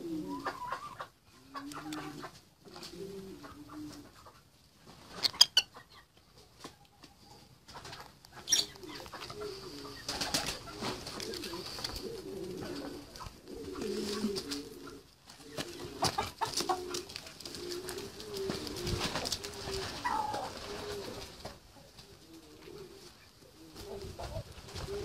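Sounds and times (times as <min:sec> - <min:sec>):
poultry cooing: 0:00.0 - 0:04.4, 0:07.1 - 0:25.0.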